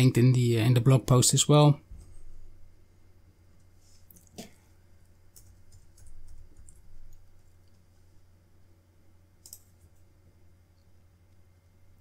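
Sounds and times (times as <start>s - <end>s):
low steady hum: 0.0s - 12.0s
keyboard and mouse clicks: 5.3s - 7.8s, 9.4s - 10.0s.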